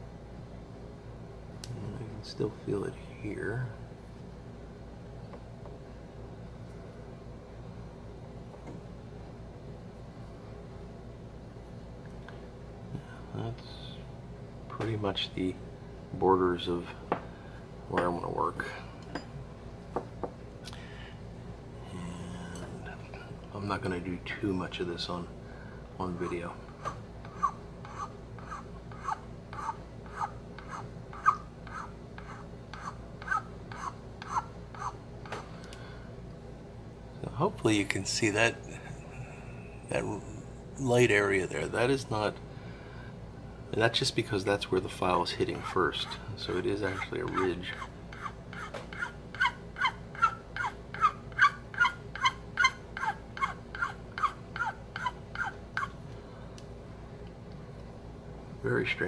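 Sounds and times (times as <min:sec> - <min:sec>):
file squeaking: 0:26.2 - 0:35.0, 0:46.8 - 0:55.9
metal file rasping on wood: 0:27.3 - 0:34.9, 0:46.8 - 0:49.5.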